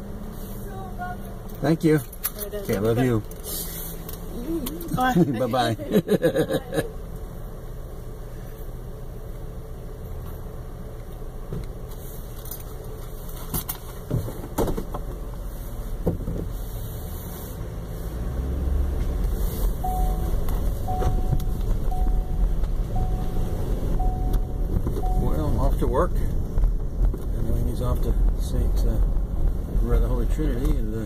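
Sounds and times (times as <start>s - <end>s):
car engine idling: 0.0s - 31.0s
short chime beeps: 19.8s - 25.7s.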